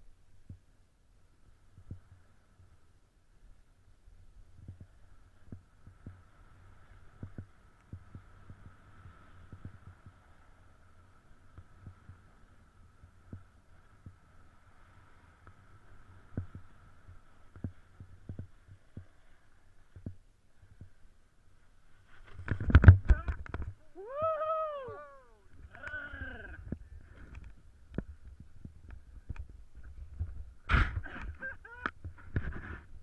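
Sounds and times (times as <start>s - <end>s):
faint steady hum: 0.0s - 33.0s
snowboard thumping over snow: 28.0s - 32.9s.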